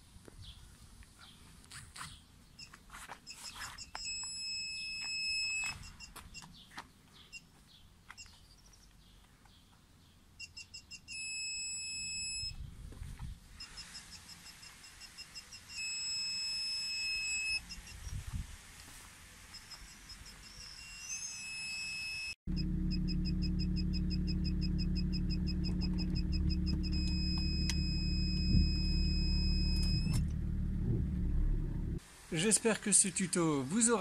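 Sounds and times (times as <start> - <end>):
reversing sensor beeps: 2.6 - 6.2, 10.4 - 12.6, 13.6 - 18.1, 19.5 - 30.2.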